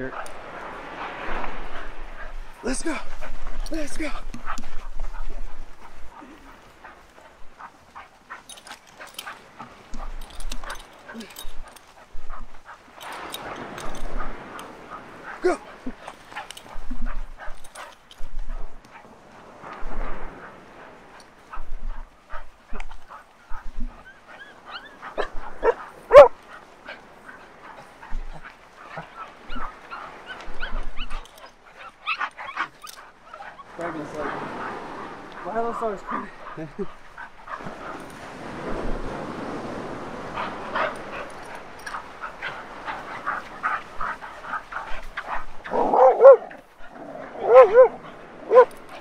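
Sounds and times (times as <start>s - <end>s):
wind rumble on microphone: 0.0s - 31.3s, 33.7s - 49.0s
dogs whining and yipping: 22.7s - 33.8s, 40.4s - 49.0s
loud dog bark: 25.2s - 26.4s, 45.7s - 46.5s, 47.4s - 48.7s.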